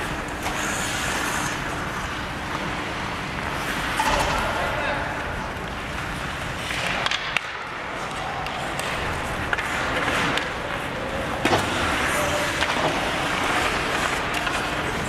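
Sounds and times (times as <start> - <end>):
skates scraping on ice: 0.0 - 15.0
sticks hitting puck: 5.7 - 15.0.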